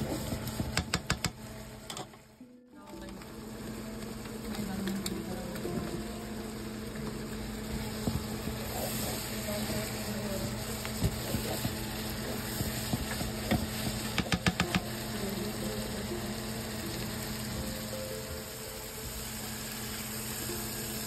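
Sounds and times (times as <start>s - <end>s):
spoon stirring and scraping pan: 0.0s - 2.1s, 7.7s - 15.0s
steady low hum: 0.0s - 21.0s
spoon tapping pan: 0.6s - 1.4s, 10.8s - 15.0s.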